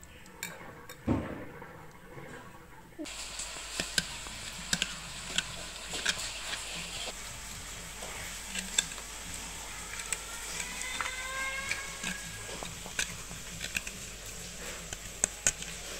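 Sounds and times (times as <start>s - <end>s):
steady hiss: 3.1s - 15.9s
knife scraping seed shells: 3.2s - 15.9s.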